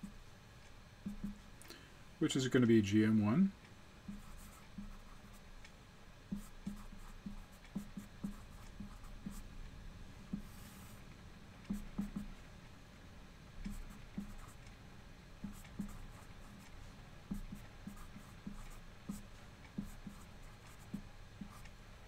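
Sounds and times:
marker pen tapping and writing: 0:01.0 - 0:01.4, 0:04.1 - 0:05.4, 0:06.3 - 0:09.4, 0:10.3 - 0:10.8, 0:11.6 - 0:12.3, 0:13.6 - 0:14.6, 0:15.4 - 0:16.7, 0:17.3 - 0:21.8.

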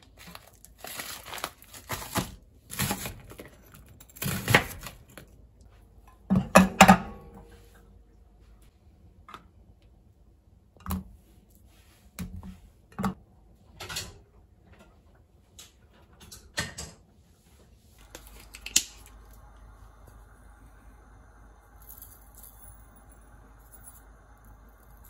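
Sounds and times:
faint steady hum: 0:17.4 - 0:25.0.

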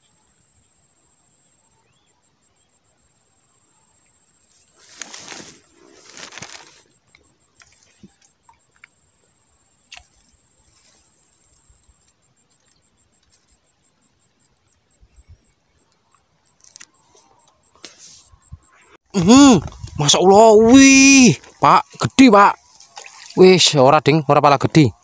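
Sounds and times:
high-pitched insect trill: 0:00.1 - 0:25.0.

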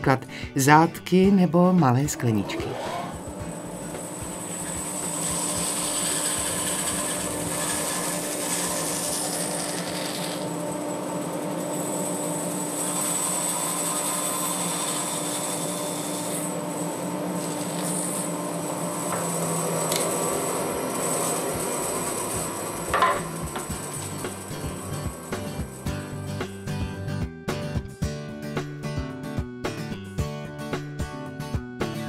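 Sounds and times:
band saw cutting wood: 0:01.5 - 0:27.0.

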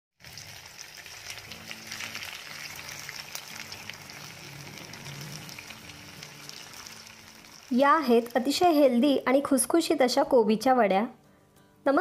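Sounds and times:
oil crackling and popping: 0:00.2 - 0:09.0
food deep-frying in hot oil: 0:00.2 - 0:09.4.

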